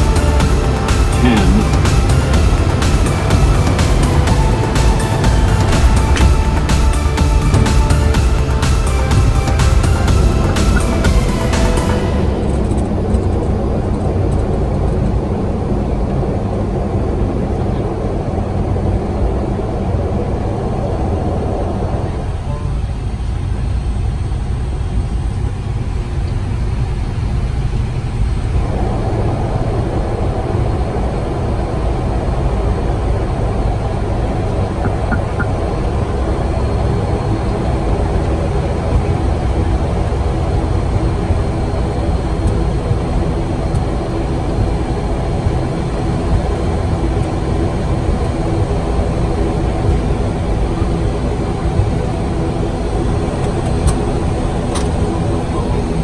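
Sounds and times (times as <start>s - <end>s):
steady tones: 0.0s - 13.8s, 34.5s - 56.0s
turboprop engines rumbling: 0.0s - 56.0s.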